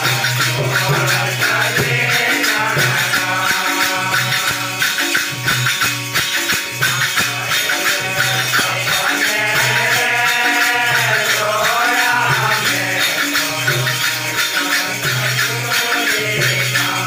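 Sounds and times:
person singing: 0:00.0 - 0:05.2, 0:07.3 - 0:14.0
hand cymbals clashing: 0:00.0 - 0:17.0
tabla beat: 0:00.0 - 0:17.0.

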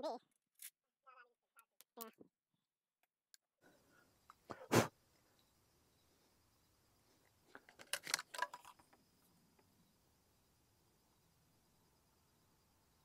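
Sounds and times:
light metallic clicks of rifle lock: 0:07.6 - 0:08.8.

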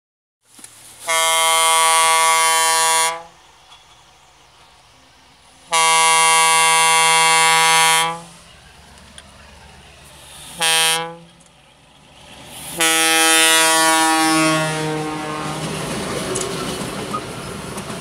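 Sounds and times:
locomotive air horn blasts: 0:01.0 - 0:03.4, 0:05.7 - 0:08.5, 0:10.4 - 0:11.4, 0:12.7 - 0:15.8.

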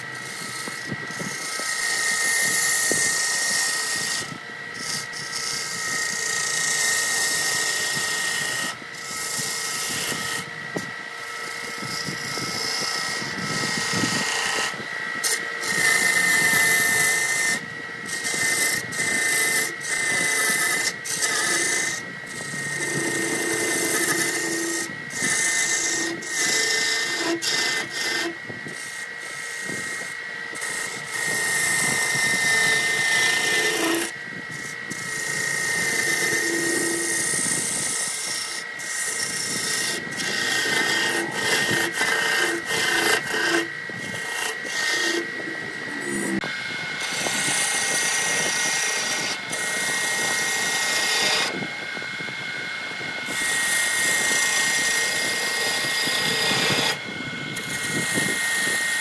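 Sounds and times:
lathe high whine: 0:00.0 - 0:59.0
gouge cutting wood shavings hiss: 0:18.1 - 0:46.4, 0:47.0 - 0:51.5.

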